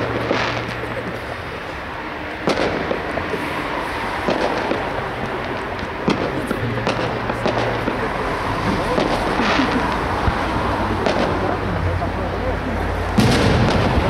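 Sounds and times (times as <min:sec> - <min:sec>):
fireworks pops and crackles: 0:00.0 - 0:11.7, 0:13.1 - 0:14.0
fireworks bangs: 0:00.0 - 0:14.0.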